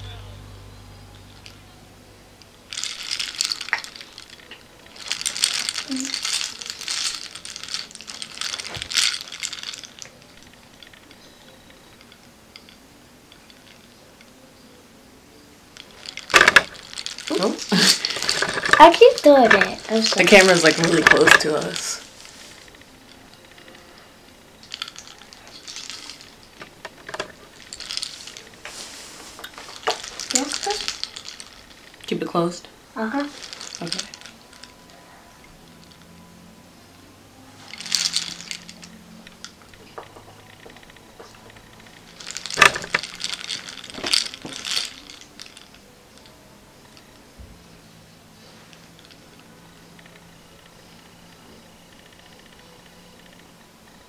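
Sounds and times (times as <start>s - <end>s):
small hard objects clattering: 2.4s - 12.8s, 15.8s - 24.0s, 24.6s - 35.0s, 37.6s - 46.3s
makeup pencil clicks and rustles: 15.8s - 23.8s, 37.7s - 45.8s.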